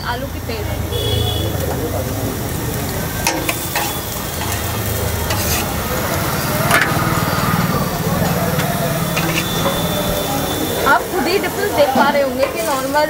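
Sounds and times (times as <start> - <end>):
dosa sizzling: 0.0 - 13.0
metal spatula scraping griddle: 3.2 - 10.6.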